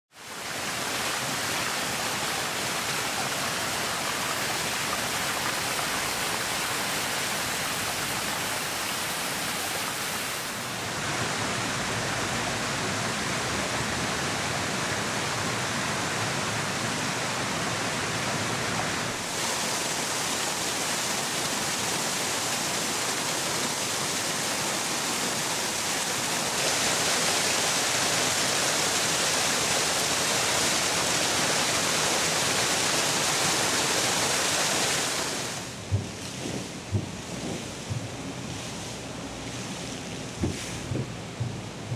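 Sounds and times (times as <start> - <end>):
fountain water rushing: 0.1 - 41.9.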